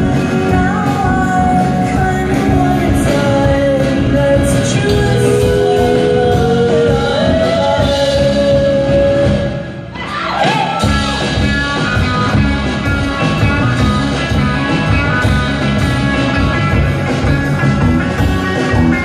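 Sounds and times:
person singing: 0.0s - 10.9s
live rock band playing: 0.0s - 19.0s.

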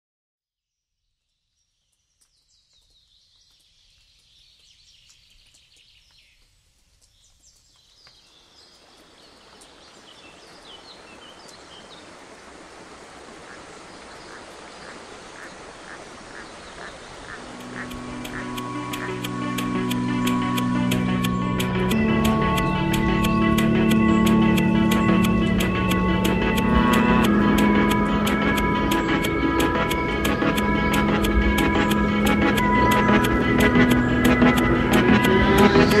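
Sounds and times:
birds calling: 3.5s - 36.0s
rushing mountain stream: 8.0s - 36.0s
music with steady beat: 17.6s - 36.0s.

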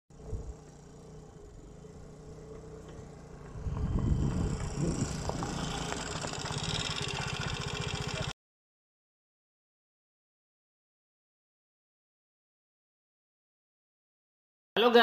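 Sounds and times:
scooter engine running: 0.1s - 8.4s.

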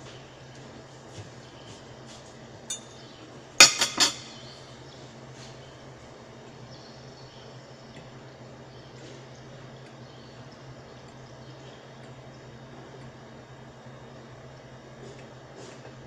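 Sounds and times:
steady low hum: 0.0s - 16.0s
kitchenware clinking: 3.6s - 4.4s.

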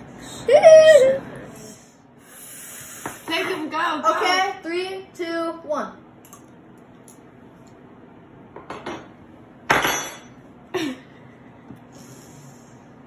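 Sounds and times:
tableware clinking on wooden table: 8.6s - 10.4s.

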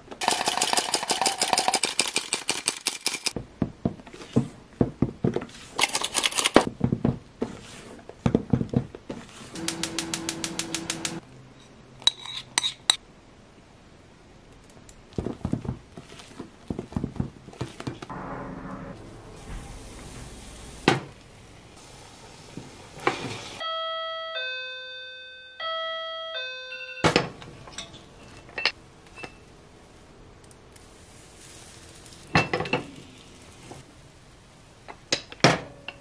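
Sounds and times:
two-note ding-dong chime: 23.6s - 27.1s
metal kitchenware clinking: 27.0s - 29.3s.

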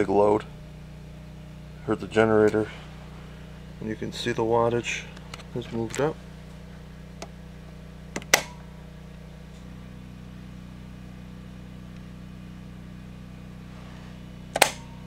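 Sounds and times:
low electrical hum: 0.0s - 15.0s
rocker switches clicking: 8.1s - 8.6s, 14.5s - 14.9s.

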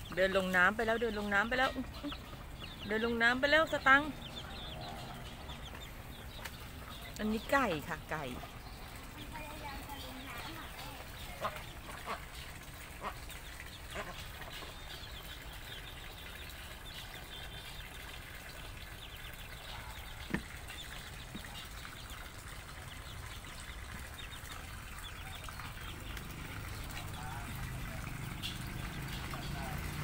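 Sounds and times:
chickens clucking: 0.0s - 15.6s.

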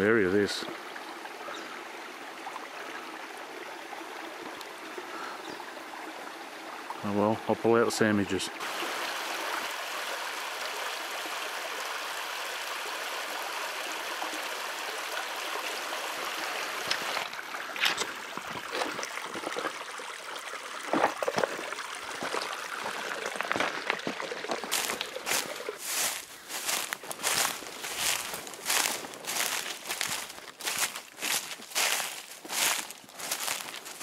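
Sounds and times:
water trickling over rocks: 0.0s - 7.5s, 8.3s - 34.0s
crunches in leaf litter and gravel: 23.4s - 34.0s.

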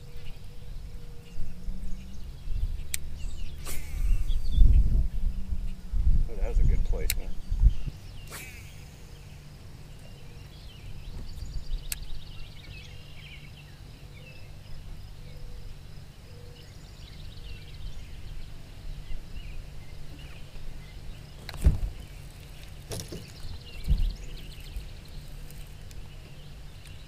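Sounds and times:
small birds chirping: 0.0s - 27.0s
steady low hum: 0.0s - 27.0s
sharp click: 7.0s - 7.3s
loud thump: 21.6s - 22.0s.

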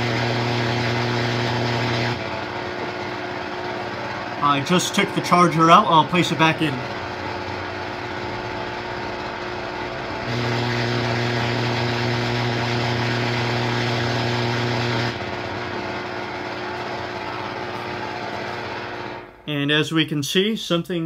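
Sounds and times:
electrical interference hum: 0.0s - 19.8s
loudspeaker background hiss: 4.4s - 6.8s.

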